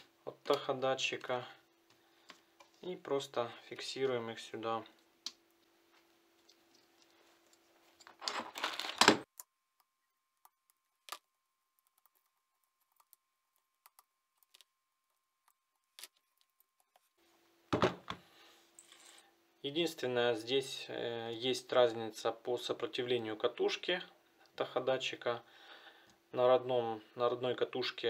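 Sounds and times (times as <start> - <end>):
wires and connector rustling: 4.8 - 17.2.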